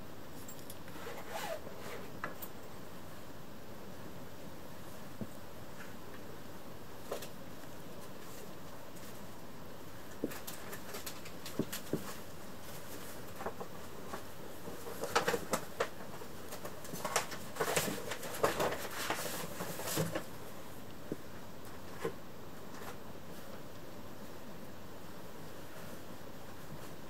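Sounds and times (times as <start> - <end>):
kittens rustling: 4.7 - 23.9.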